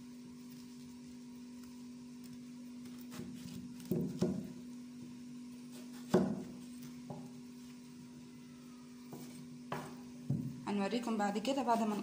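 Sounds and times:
steady low hum: 0:00.0 - 0:12.0
knife chopping on cutting board: 0:03.0 - 0:04.5, 0:05.7 - 0:07.3.

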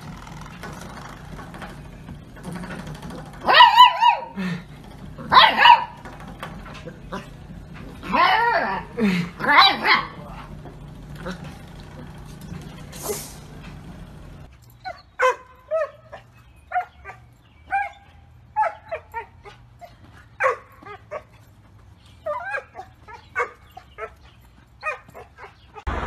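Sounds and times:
dog barking in high yips: 0:03.4 - 0:04.4, 0:05.3 - 0:06.0, 0:08.1 - 0:10.2, 0:14.8 - 0:19.6, 0:20.4 - 0:21.3, 0:24.8 - 0:25.9.

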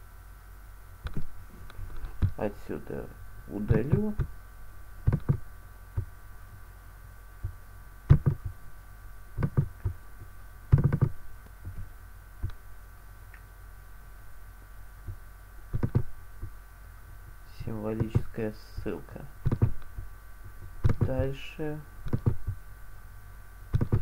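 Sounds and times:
faint electrical hum: 0:00.0 - 0:24.0
laptop keys pressed: 0:08.1 - 0:08.5, 0:09.4 - 0:10.0, 0:10.7 - 0:11.2, 0:23.7 - 0:24.0.

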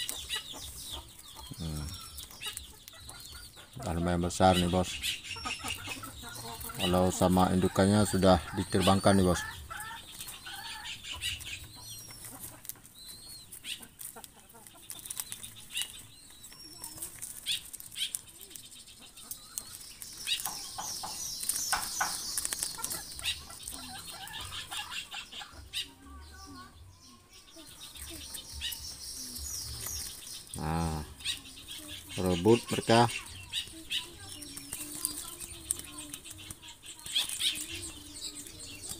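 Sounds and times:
doves flapping wings: 0:09.2 - 0:25.0.

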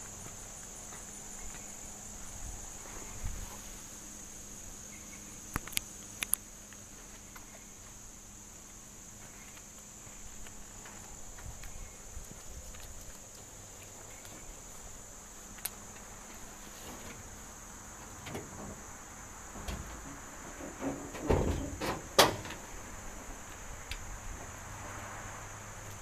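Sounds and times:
high drone of insects: 0:00.0 - 0:26.0
metal hood clunks and clicks: 0:18.1 - 0:18.9, 0:19.5 - 0:22.8.

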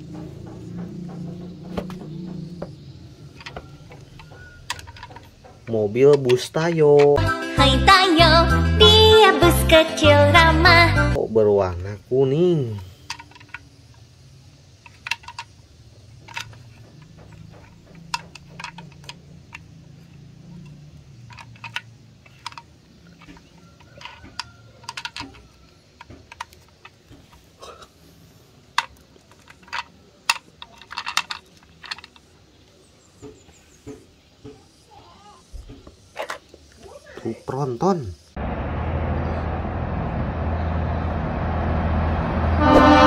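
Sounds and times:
plastic toys clicking: 0:03.2 - 0:07.2, 0:12.5 - 0:27.5, 0:28.6 - 0:32.8.

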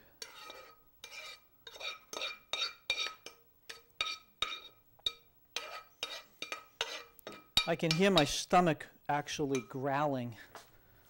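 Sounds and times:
metal spoon scraping a skillet: 0:00.0 - 0:08.6.

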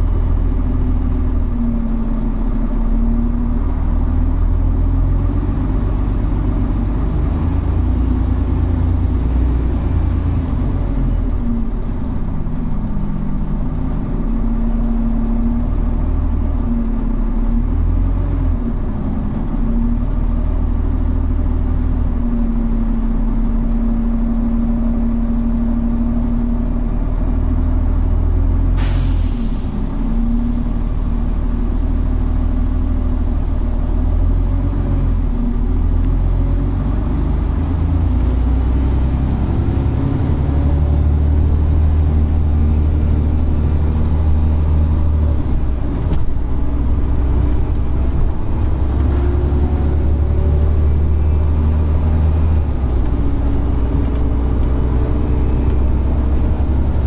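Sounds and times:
bus engine drone: 0:00.0 - 0:57.0
short sharp hiss: 0:28.8 - 0:29.8.

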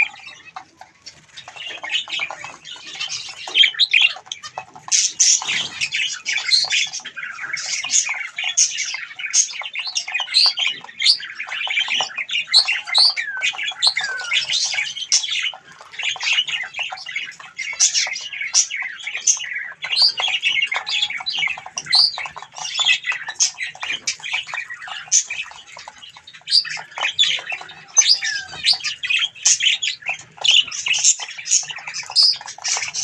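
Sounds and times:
flock of birds chirping: 0:00.0 - 0:33.0.

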